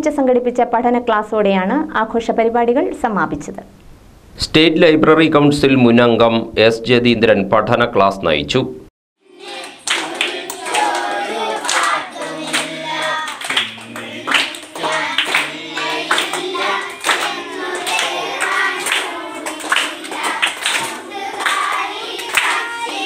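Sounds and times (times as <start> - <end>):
children and man singing: 9.2 - 23.0
hands clapping: 9.4 - 23.0.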